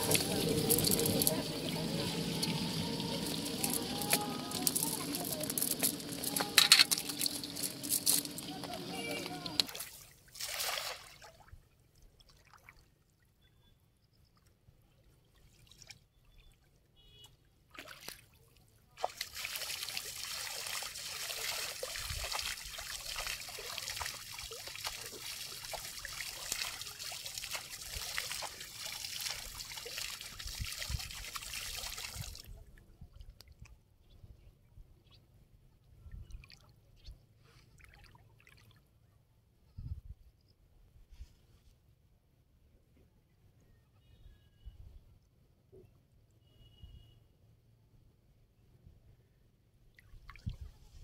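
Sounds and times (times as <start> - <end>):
water trickling and splashing: 0.0 - 13.2, 15.1 - 16.6, 17.6 - 33.6, 50.0 - 51.0.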